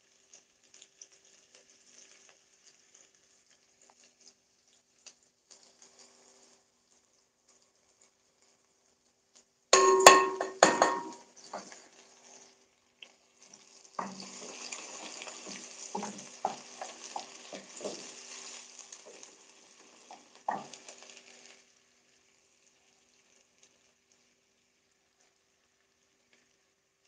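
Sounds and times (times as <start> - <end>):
onions sizzling in oil: 0.0 - 27.0
wooden spoon knocking on pot: 9.8 - 11.7, 14.0 - 14.4, 15.5 - 18.1, 20.5 - 20.7.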